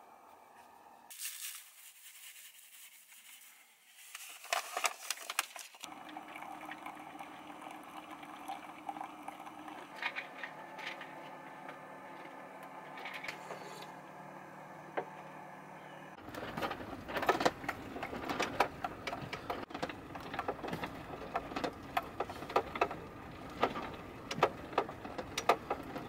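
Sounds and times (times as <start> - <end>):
rough road rumble: 16.2 - 26.0
van contents rattling and clanking: 16.2 - 26.0.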